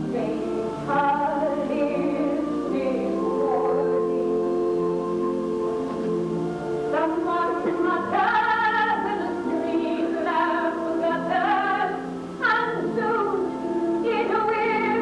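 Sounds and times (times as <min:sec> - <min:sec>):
woman singing with vibrato: 0:00.0 - 0:06.3, 0:06.9 - 0:15.0
orchestral chords: 0:00.0 - 0:15.0.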